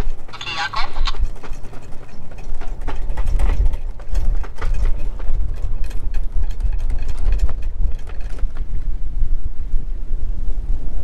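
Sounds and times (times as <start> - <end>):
knocks and clatters: 0.0 - 8.7
wind buffeting microphone: 0.0 - 11.0.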